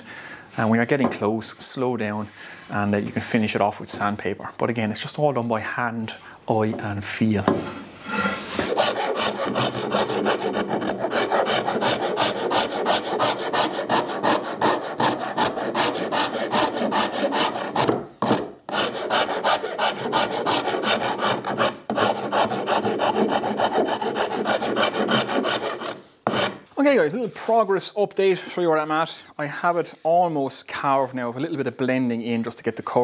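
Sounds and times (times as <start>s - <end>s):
rasp filing wood: 8.1s - 26.6s.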